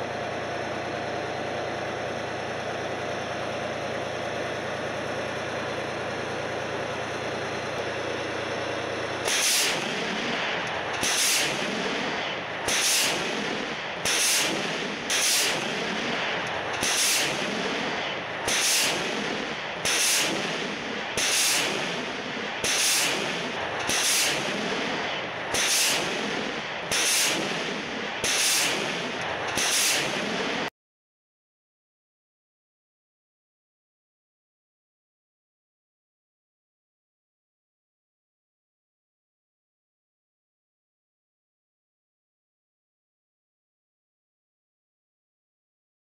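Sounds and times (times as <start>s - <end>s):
diesel engine running: 0.0s - 30.7s
rocket launch whooshes: 9.3s - 30.7s.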